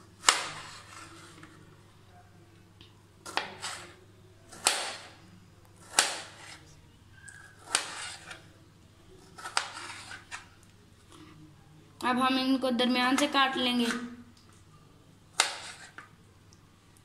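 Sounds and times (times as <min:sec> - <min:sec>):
knife cutting tomato: 0:00.2 - 0:01.4, 0:03.2 - 0:05.2, 0:05.8 - 0:06.7, 0:07.4 - 0:08.5, 0:09.2 - 0:10.5, 0:15.3 - 0:16.1.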